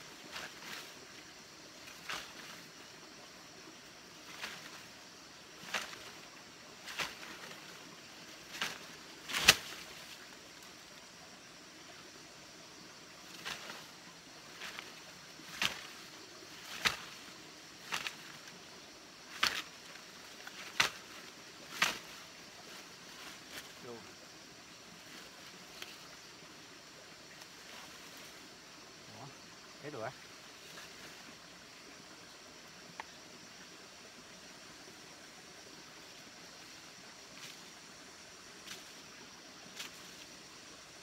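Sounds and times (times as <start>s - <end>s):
branch swishing and whacking: 0.2s - 1.0s, 1.8s - 2.7s, 4.2s - 5.0s, 5.6s - 10.2s, 13.3s - 13.9s, 14.5s - 18.6s, 19.3s - 23.8s, 38.6s - 39.0s, 39.7s - 40.3s.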